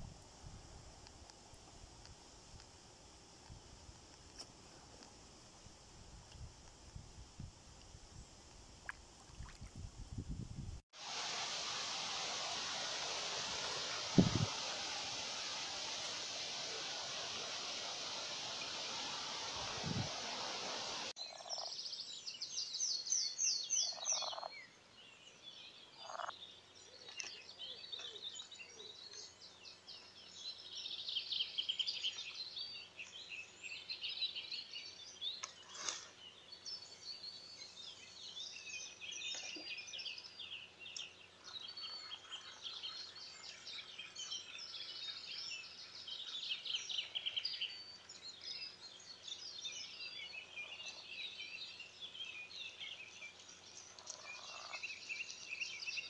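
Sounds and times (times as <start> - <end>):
songbirds chirping and trilling: 14.6 - 56.0.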